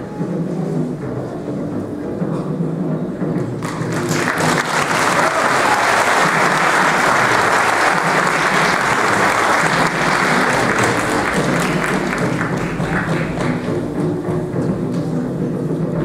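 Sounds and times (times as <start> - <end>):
audience applauding: 3.6 - 14.0.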